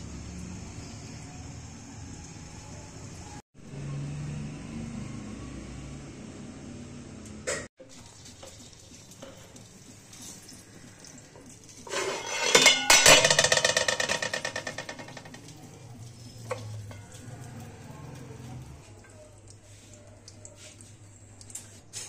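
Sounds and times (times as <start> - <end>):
steel bowl clattering on pot: 11.7 - 17.8
metal clink: 11.9 - 15.1.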